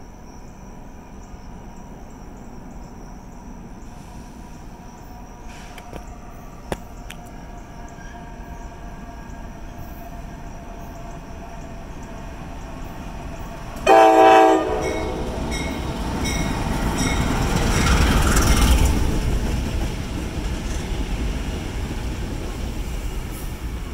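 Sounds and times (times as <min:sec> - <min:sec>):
locomotive engine and wheel rumble: 0:00.6 - 0:23.9
air horn blast: 0:13.8 - 0:15.3.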